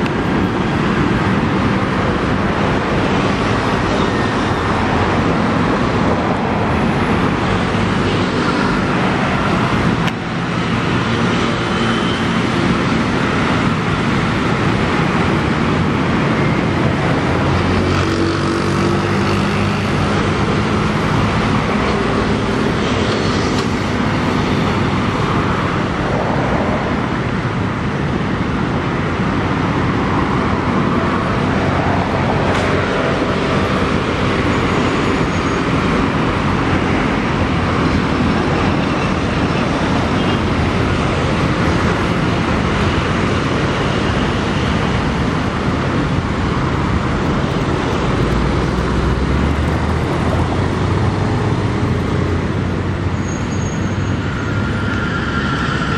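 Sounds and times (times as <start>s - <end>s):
passing cars: 0.0s - 55.9s
motor scooters passing: 15.0s - 27.1s.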